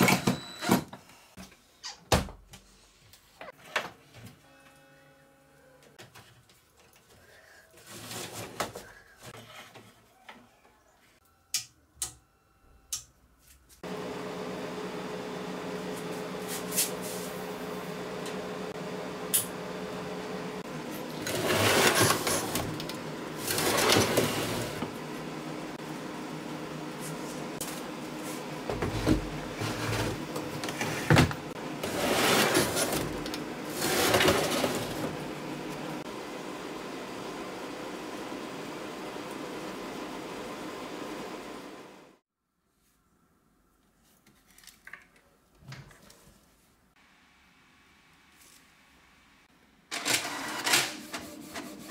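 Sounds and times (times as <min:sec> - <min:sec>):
steady mechanical hum: 0:11.2 - 0:42.2
metal drawer slides: 0:21.1 - 0:25.0, 0:28.7 - 0:36.0.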